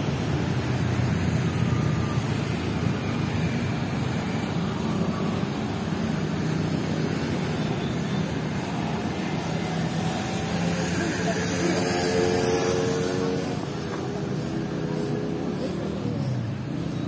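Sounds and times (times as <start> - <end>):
road traffic drone: 0.0 - 17.0.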